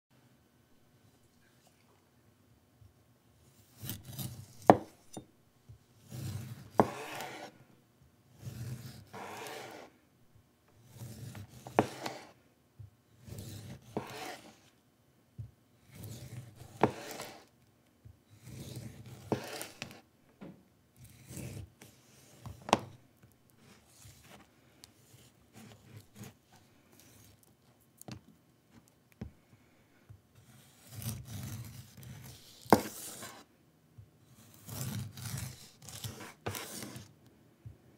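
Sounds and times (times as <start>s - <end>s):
knife cutting through avocado skin: 3.6s - 5.2s, 6.0s - 7.6s, 8.3s - 9.9s, 10.8s - 12.4s, 13.2s - 14.6s, 15.8s - 17.5s, 18.3s - 20.0s, 21.0s - 23.0s, 25.1s - 27.5s, 30.4s - 33.4s, 34.4s - 37.1s.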